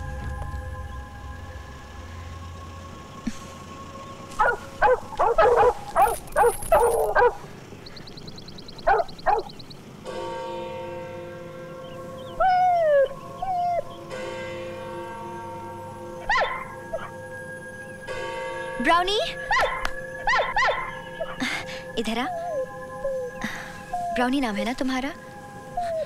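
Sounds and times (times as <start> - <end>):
background music: 0.0 - 6.0, 10.1 - 26.0
large dogs barking: 4.3 - 7.7, 8.7 - 9.6, 16.2 - 17.2, 19.4 - 21.4.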